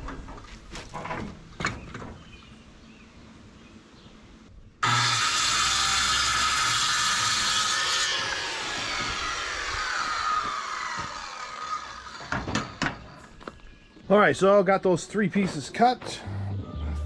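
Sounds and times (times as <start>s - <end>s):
circular saw cutting wood: 4.8s - 13.2s.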